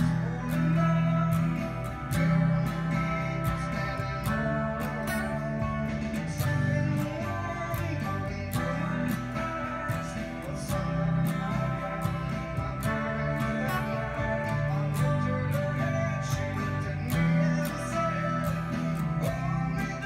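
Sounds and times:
electric guitar playing: 0.0 - 20.0
strummed guitars: 0.0 - 20.0.

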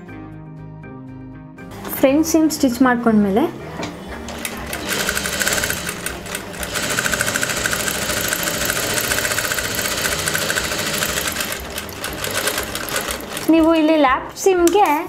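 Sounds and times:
sewing machine running fast: 4.6 - 13.7.

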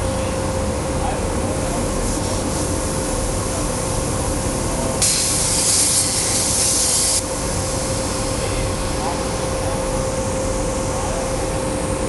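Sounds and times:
machine hum with thin tone: 0.0 - 12.0
plasma cutter arc hissing: 1.8 - 11.2.

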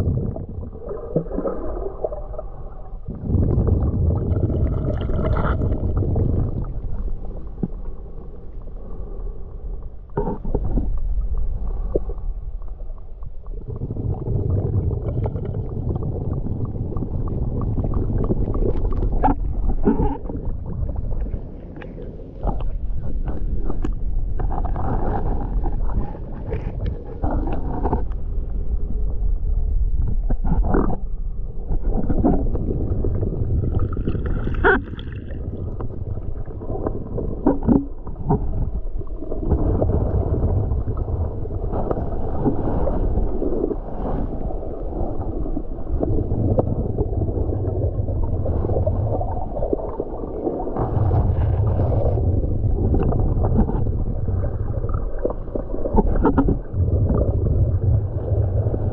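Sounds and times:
gurgling water: 0.0 - 58.9
muffled underwater rumble: 0.0 - 58.9.

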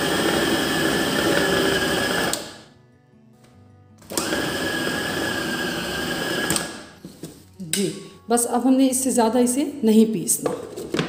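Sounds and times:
food processor motor whine: 0.0 - 2.6, 4.1 - 6.8.

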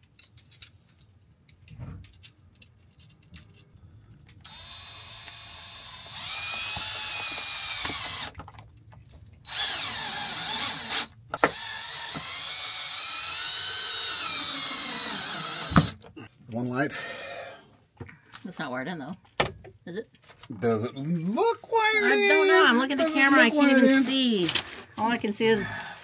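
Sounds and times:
power drill motor whirring: 4.4 - 8.4, 9.4 - 16.0.

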